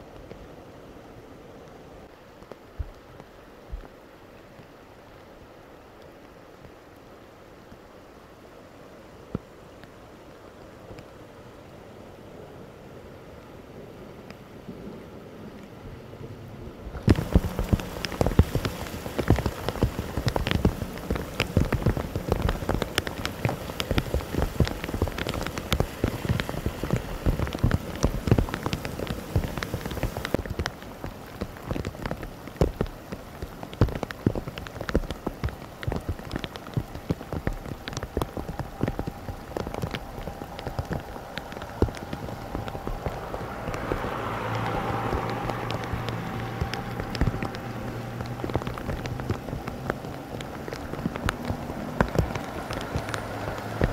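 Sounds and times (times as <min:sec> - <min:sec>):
heavy rain falling: 0:00.0 - 0:53.9
vehicle driving through water: 0:16.4 - 0:53.9.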